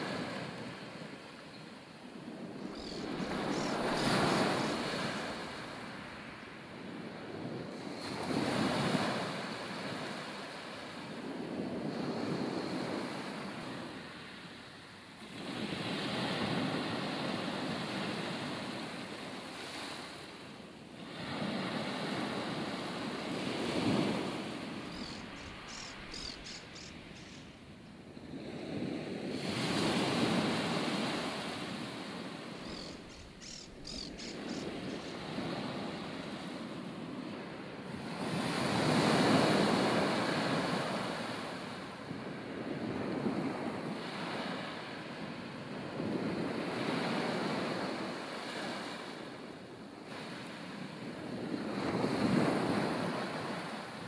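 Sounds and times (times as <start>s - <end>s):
sea waves breaking on beach: 0.0s - 14.6s, 15.2s - 54.0s
wind blowing: 2.1s - 6.2s, 23.0s - 37.5s.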